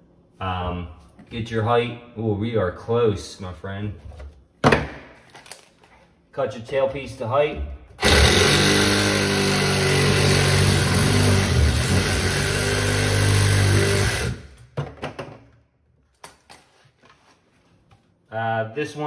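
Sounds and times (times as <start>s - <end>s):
reciprocating saw cutting plastic: 8.0s - 14.6s.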